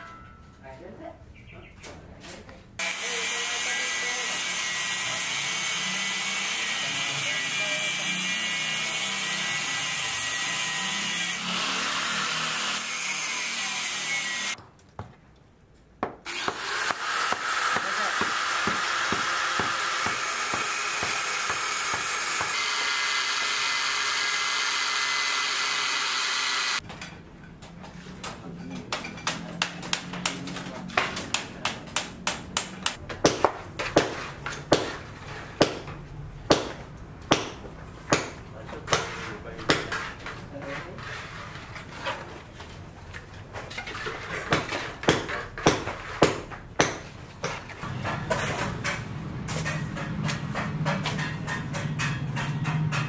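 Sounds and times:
power tool whirring: 16.3s - 26.8s.

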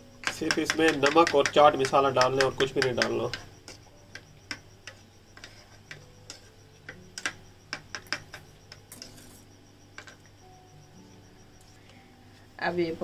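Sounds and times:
metal spoon clinking bowl: 0.2s - 9.4s.

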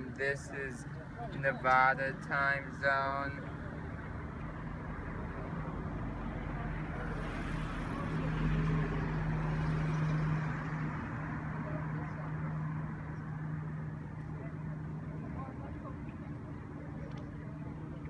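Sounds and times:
outdoor traffic noise: 0.0s - 18.0s
car driving past: 5.6s - 13.9s.

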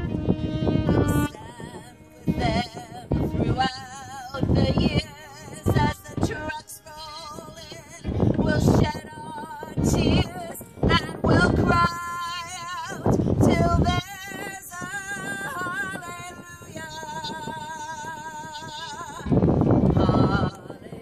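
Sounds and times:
low rumbling bursts: 0.0s - 6.6s, 19.1s - 21.0s
violin with vibrato: 0.0s - 21.0s
woman singing: 0.6s - 21.0s.

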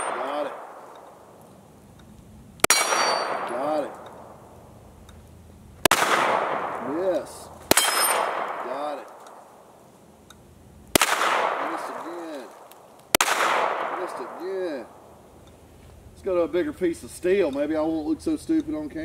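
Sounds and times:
pistol shots echoing: 0.0s - 1.3s, 2.6s - 4.4s, 5.8s - 9.7s, 10.9s - 15.1s
steel target ringing: 2.6s - 4.0s, 7.7s - 8.6s.

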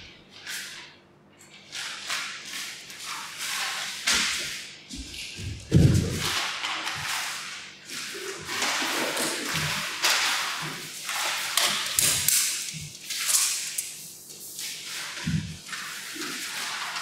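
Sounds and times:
paper sheets rustling: 1.7s - 13.7s.

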